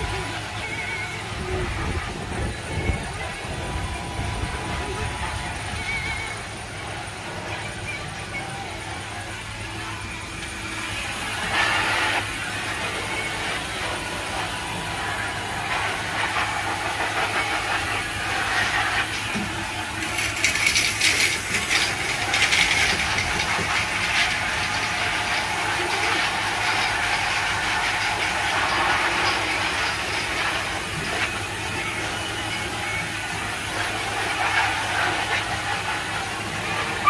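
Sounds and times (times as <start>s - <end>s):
hose hissing: 9.3s - 37.0s.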